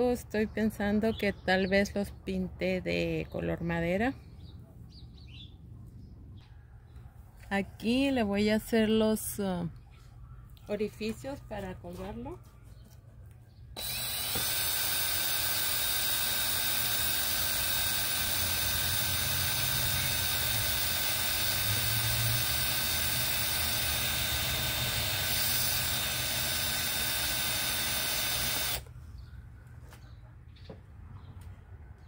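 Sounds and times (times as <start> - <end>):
electric drill boring through wood: 13.8 - 28.9.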